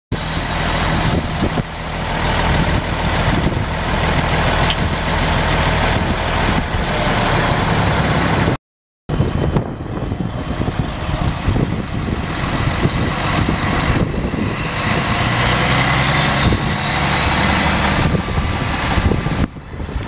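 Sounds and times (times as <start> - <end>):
diesel truck engine idling: 0.2 - 8.5.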